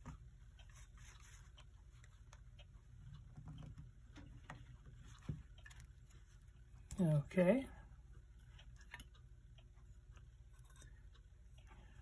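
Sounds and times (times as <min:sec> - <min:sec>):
small clicks and taps: 0:00.0 - 0:07.2
low steady hum: 0:00.0 - 0:12.0.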